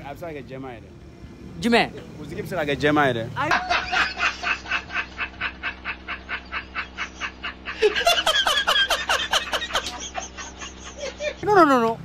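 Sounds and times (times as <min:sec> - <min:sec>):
man laughing: 0:03.4 - 0:11.6.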